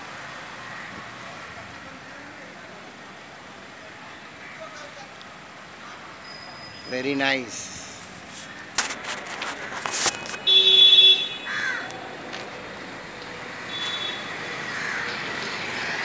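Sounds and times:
street traffic: 0.0 - 16.0
vehicle horn toot: 10.2 - 11.6, 13.7 - 14.3.

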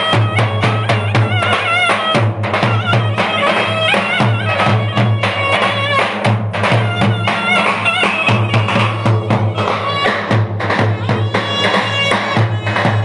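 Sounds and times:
clarinet playing folk melody: 0.0 - 6.0
bass drums beating: 0.0 - 13.0.

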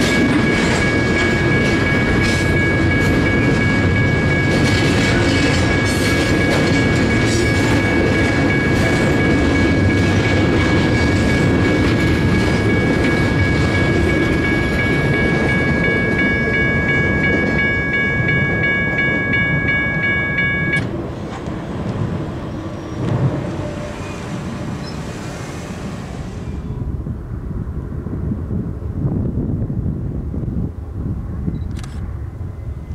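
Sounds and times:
railroad crossing bell ringing: 0.0 - 21.0
freight train rumbling: 0.0 - 32.9.

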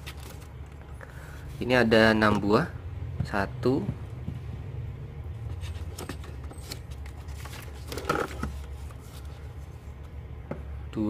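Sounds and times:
plastic and cardboard rummaging: 0.0 - 0.6, 5.5 - 9.6
steady low hum: 0.0 - 11.0.

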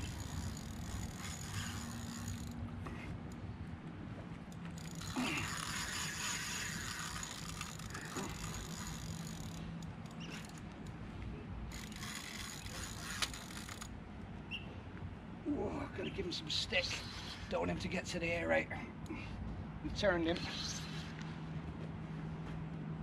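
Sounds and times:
fishing reel drag ratcheting: 0.0 - 2.6, 4.8 - 10.6, 11.7 - 13.9.

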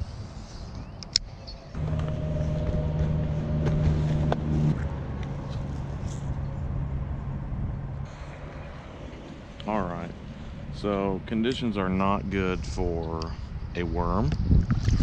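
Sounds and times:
motor hum: 1.7 - 9.7.

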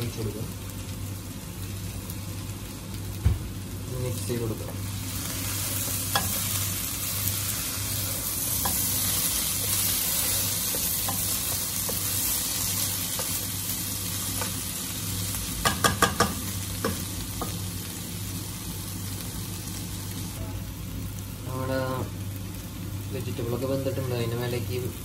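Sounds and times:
food sizzling in pot: 0.0 - 25.0
spatula scraping and tapping pot: 15.6 - 17.6.

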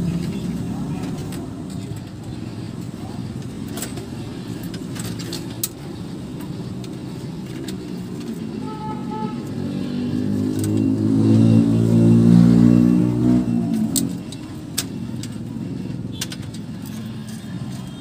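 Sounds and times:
low traffic rumble: 0.0 - 18.0
vehicle engine running: 0.0 - 18.0
plastic parts clicking: 3.3 - 8.4, 16.1 - 18.0.

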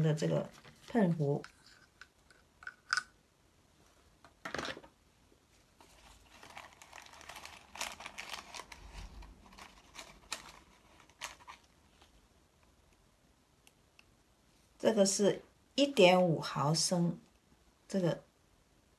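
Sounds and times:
plastic crinkling and rustling: 5.7 - 12.2.

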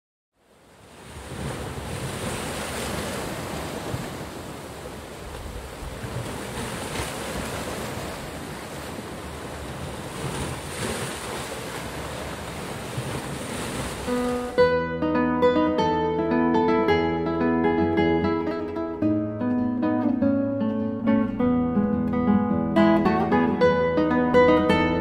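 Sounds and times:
wind: 0.3 - 25.0
sea waves: 0.4 - 19.2.

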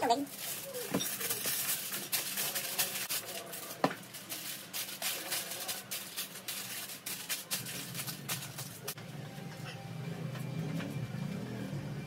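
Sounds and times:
aluminium foil crinkling: 0.0 - 9.0.

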